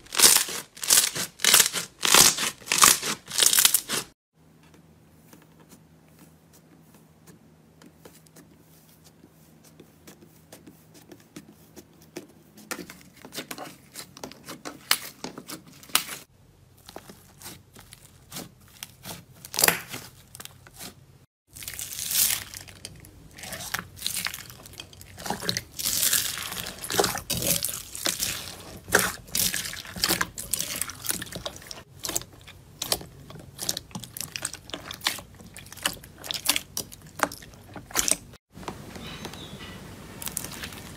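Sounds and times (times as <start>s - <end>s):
crunchy crackling of foam beads: 0.0s - 4.2s, 16.7s - 38.4s
slime squishing with wet clicks: 21.7s - 38.4s.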